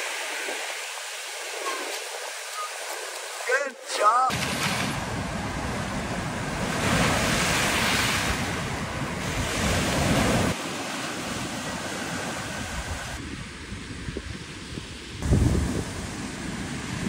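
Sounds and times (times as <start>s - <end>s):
ocean surf breaking: 0.0s - 13.7s, 14.5s - 17.0s
wind buffeting microphone: 4.4s - 10.6s, 11.2s - 17.0s.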